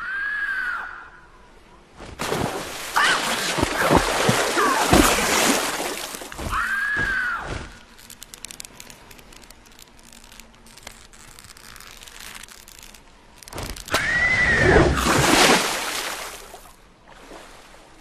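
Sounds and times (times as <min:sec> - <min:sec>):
cartoon owl screeching: 0:06.4 - 0:07.8, 0:13.9 - 0:15.0.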